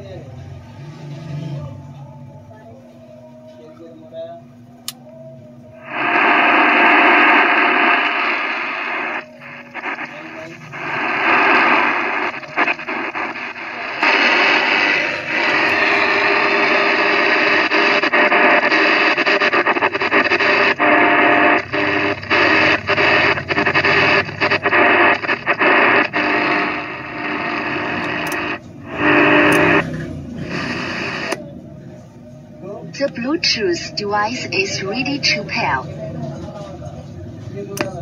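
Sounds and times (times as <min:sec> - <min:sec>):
radio static hiss: 0:05.8 - 0:31.5, 0:32.7 - 0:35.9.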